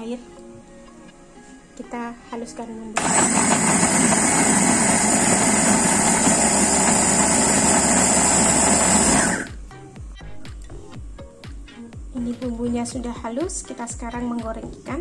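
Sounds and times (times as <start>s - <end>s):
electric food chopper grinding: 3.0s - 9.6s.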